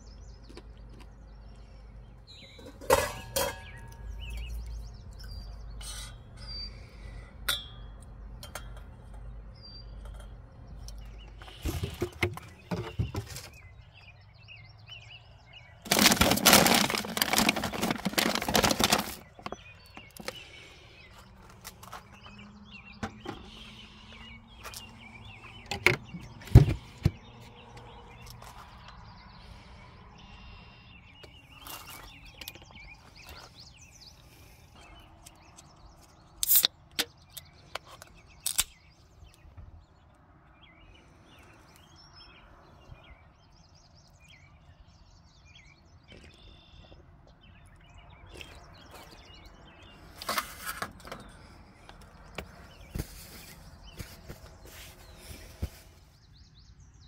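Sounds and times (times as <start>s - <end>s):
plastic packaging crinkling: 15.9s - 19.6s
faint bird chirps: 22.1s - 36.3s, 40.6s - 50.0s.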